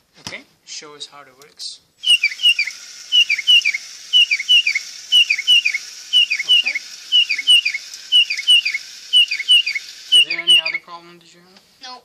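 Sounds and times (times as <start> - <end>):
electronic bird chirps: 2.0 - 10.9
steady hiss: 2.0 - 12.0.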